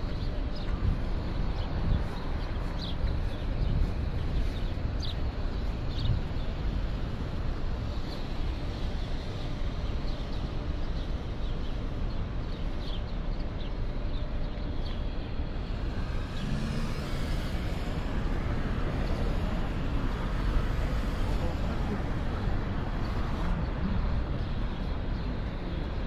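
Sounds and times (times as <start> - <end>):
rumble of passing vehicles: 0.0 - 26.0.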